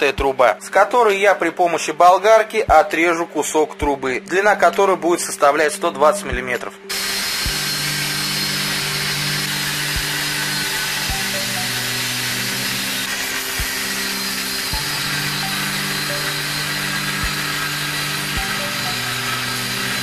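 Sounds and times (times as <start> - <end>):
background music with low beat: 0.0 - 20.0
angle grinder cutting metal: 6.9 - 20.0.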